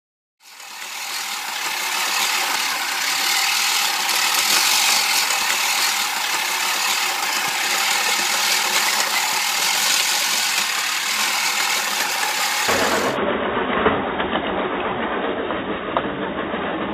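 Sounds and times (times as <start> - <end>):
reel mower blades whirring: 0.4 - 13.2.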